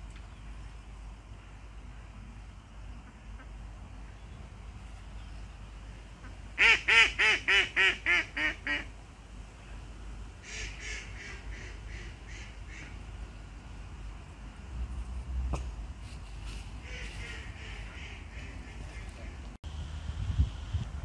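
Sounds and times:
duck quacking: 6.2 - 8.9, 10.4 - 13.0, 16.8 - 19.4.

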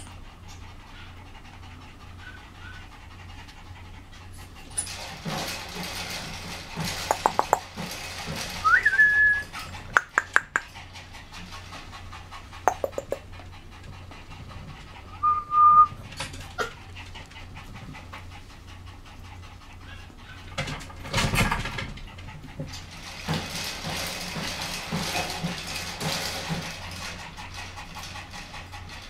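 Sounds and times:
scattered clicks: 6.9 - 8.0, 9.7 - 10.7.

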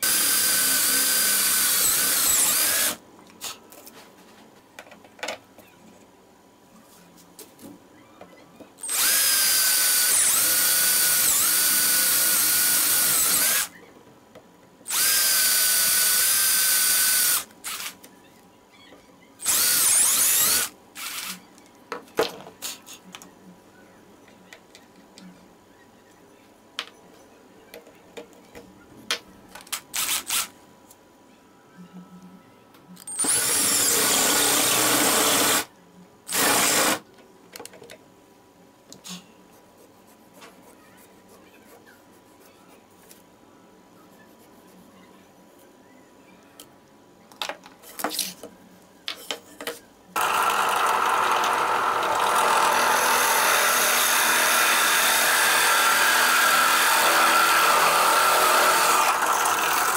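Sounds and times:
cordless drill whining: 0.0 - 3.0, 8.8 - 13.7, 14.9 - 17.9, 19.4 - 21.3, 33.1 - 35.7, 36.3 - 37.0, 50.2 - 59.9.

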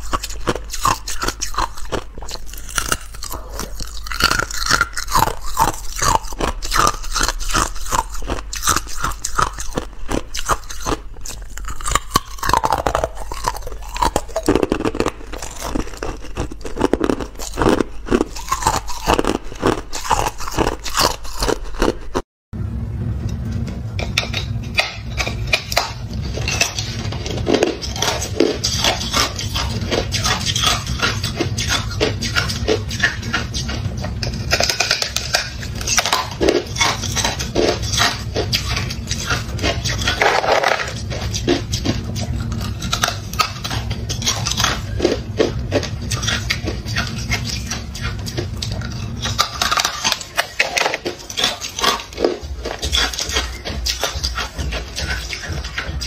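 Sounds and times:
ice being chewed: 0.0 - 22.2, 24.0 - 56.0
steady low hum: 0.0 - 56.0.

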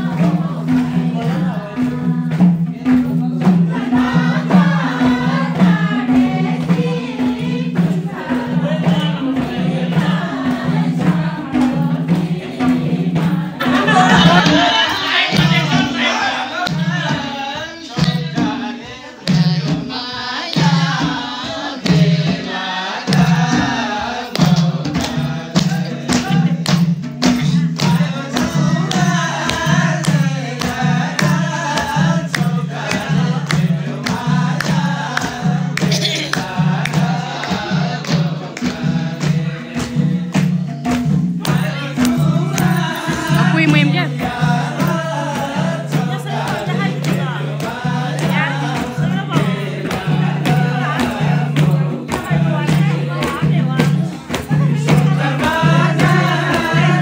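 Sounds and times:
group singing folk song: 0.0 - 57.0
sharp percussive strokes: 0.0 - 57.0
steady low beat: 23.2 - 57.0.

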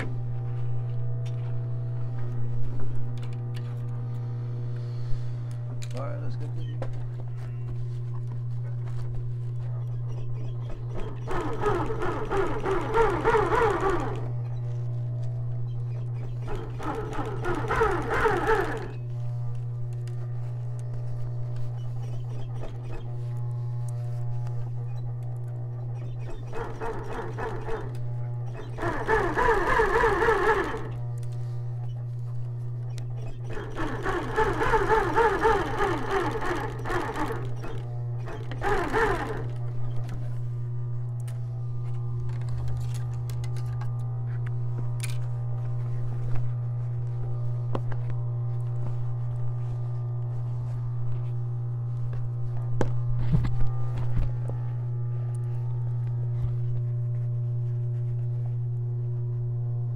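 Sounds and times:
motor humming: 0.0 - 59.9
sewing machine stitching: 10.6 - 14.5, 16.2 - 19.1, 26.0 - 31.0, 33.2 - 39.6.

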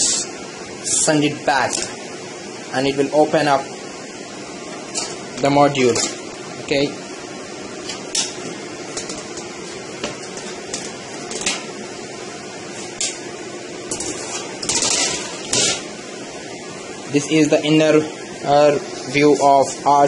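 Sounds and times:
steady background hum: 0.0 - 20.0
metal cover clicking and scraping: 13.9 - 15.8.

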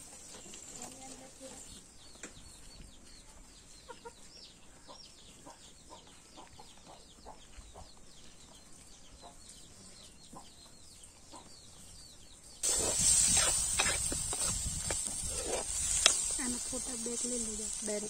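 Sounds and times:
small birds chirping: 0.0 - 18.0
hen clucking: 3.8 - 7.9.

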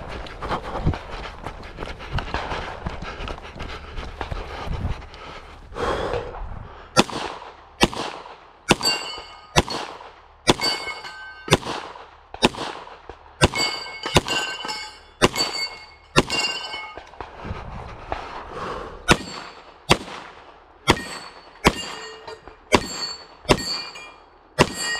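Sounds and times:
handgun shots: 7.0 - 14.6
steel targets ringing: 8.7 - 9.8, 10.5 - 11.6, 13.4 - 17.0, 19.1 - 19.7, 20.9 - 24.9.

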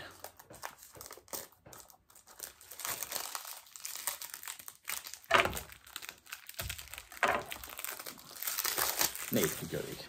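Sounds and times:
plastic shrink-wrap crinkling: 0.0 - 10.0.

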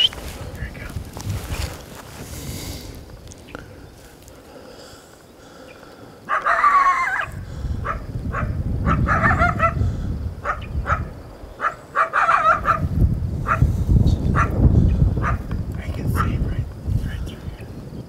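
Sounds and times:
coyote barking and howling: 6.2 - 13.7, 14.3 - 15.5.

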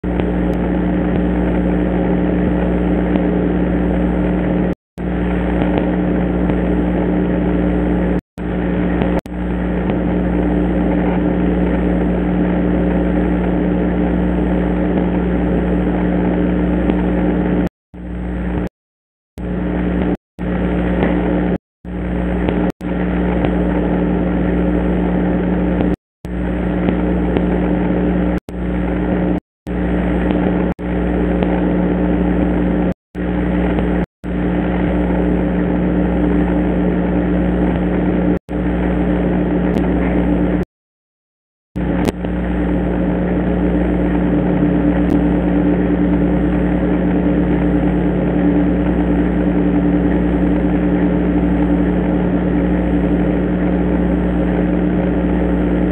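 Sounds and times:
microphone hum and hiss: 0.0 - 18.7, 19.4 - 40.6.

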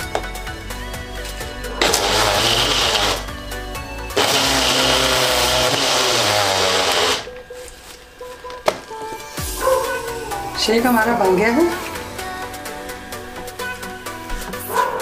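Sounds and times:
blender motor running: 1.8 - 3.3, 4.1 - 7.3.

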